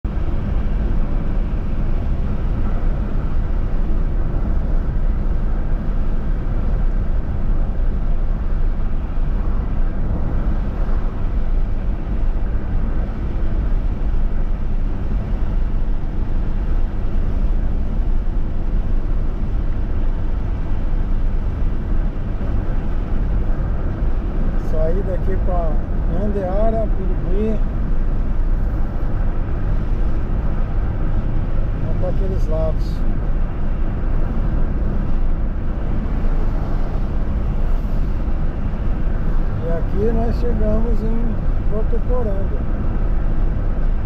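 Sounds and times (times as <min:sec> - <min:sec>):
car cabin road rumble: 0:00.0 - 0:44.0.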